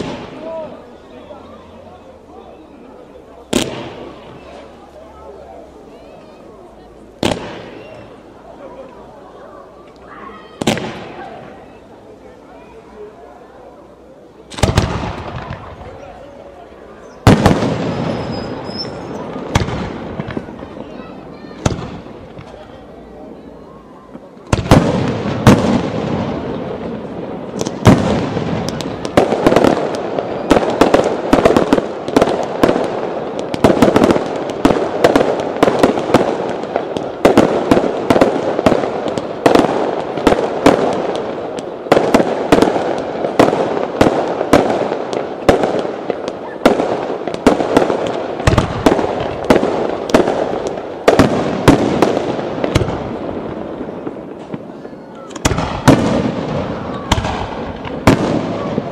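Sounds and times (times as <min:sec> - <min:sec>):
fireworks crackle: 0:00.0 - 0:58.9
fireworks shells bursting: 0:17.2 - 0:20.8.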